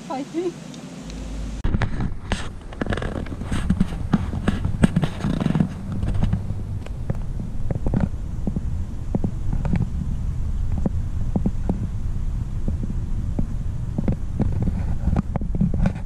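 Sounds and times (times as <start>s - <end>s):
camera handling rumble: 1.7s - 10.0s, 12.6s - 16.0s.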